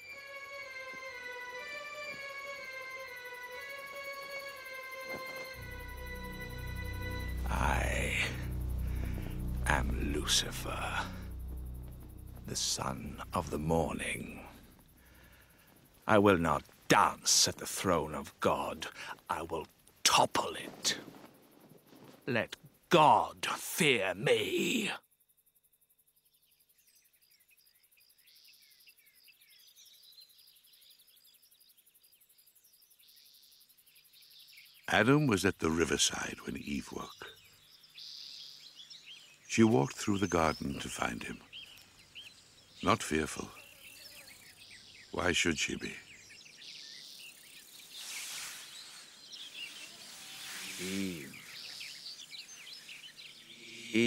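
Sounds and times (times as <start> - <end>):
bird chirps: 0.0 - 17.2, 25.9 - 54.0
buzzing insect trill: 0.0 - 17.4, 42.8 - 45.2, 45.8 - 54.0
soft rustling: 20.6 - 22.3.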